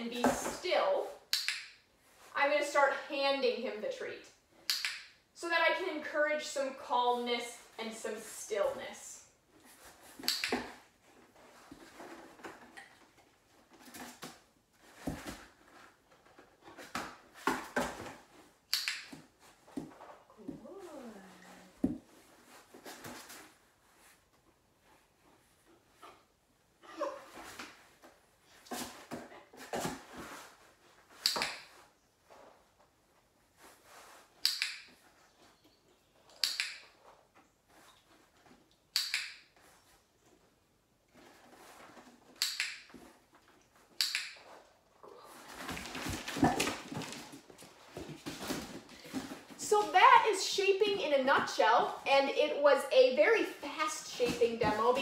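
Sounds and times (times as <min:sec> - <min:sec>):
dog-training clicker clicks: 0:36.4 - 0:36.8, 0:39.0 - 0:39.4, 0:44.0 - 0:44.4.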